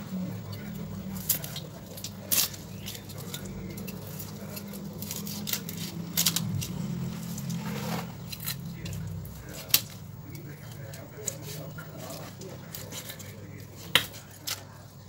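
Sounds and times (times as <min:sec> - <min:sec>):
knife scraping: 0:00.0 - 0:15.0
low steady hum: 0:00.0 - 0:15.0
knife crunching through fish: 0:00.1 - 0:14.8.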